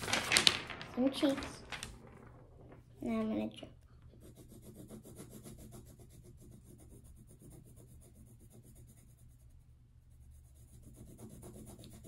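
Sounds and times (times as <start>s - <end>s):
pencil scratching on paper: 4.1s - 12.0s.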